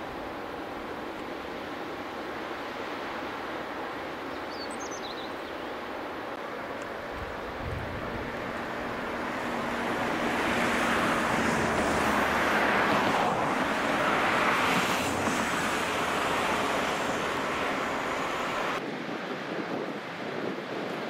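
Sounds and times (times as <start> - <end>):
vehicle passing on highway: 7.4 - 18.8.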